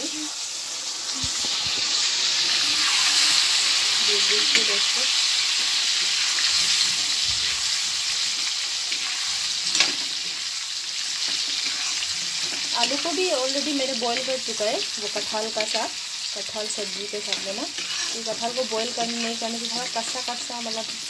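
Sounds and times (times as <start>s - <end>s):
potatoes sizzling in hot oil: 0.0s - 21.0s
metal ladle stirring and scraping: 11.0s - 13.0s, 17.2s - 21.0s.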